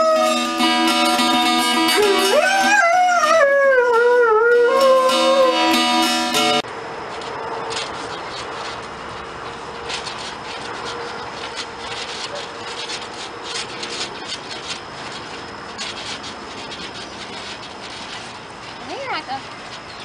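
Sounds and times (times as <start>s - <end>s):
dog paws scratching trampoline mat: 7.0s - 20.0s.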